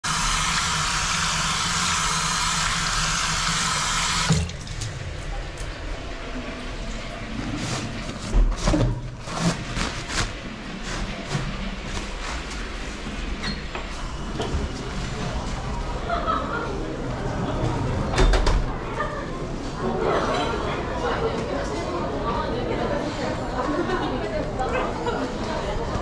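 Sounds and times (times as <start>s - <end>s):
tap water running into sink: 0.0s - 5.8s.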